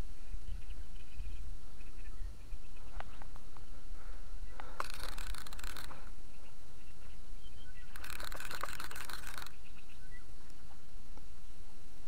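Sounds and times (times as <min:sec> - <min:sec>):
faint bird chirps: 0:00.0 - 0:11.7
wind rumble on microphone: 0:00.0 - 0:12.0
hissing rustle: 0:02.4 - 0:07.2, 0:07.8 - 0:11.5.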